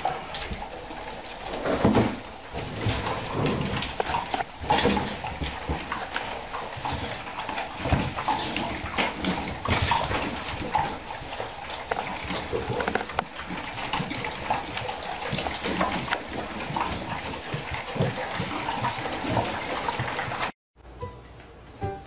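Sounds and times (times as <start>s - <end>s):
dogs chewing and lapping: 0.0s - 20.5s.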